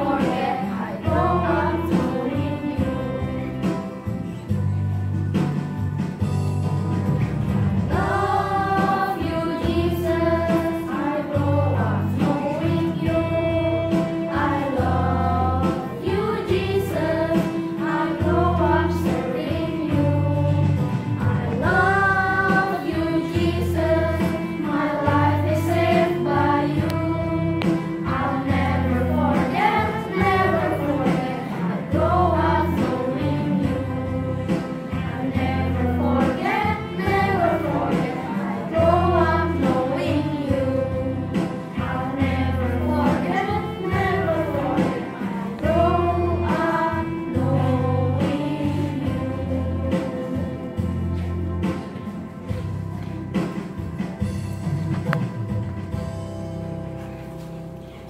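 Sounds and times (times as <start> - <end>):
children's choir singing: 0.0 - 4.3, 7.9 - 53.9
instrumental accompaniment with bass: 0.0 - 58.0.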